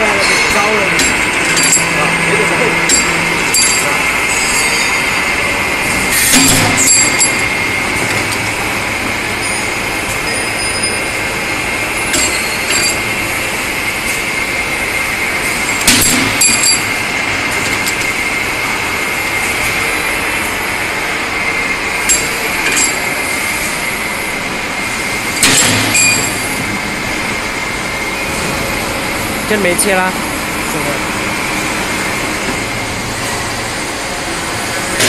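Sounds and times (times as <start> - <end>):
metal tubes clanking: 0.0 - 5.2, 12.1 - 13.2
machine high whine: 0.0 - 35.0.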